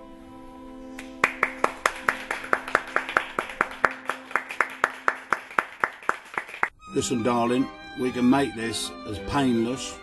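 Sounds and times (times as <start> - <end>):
person clapping: 1.0 - 6.7.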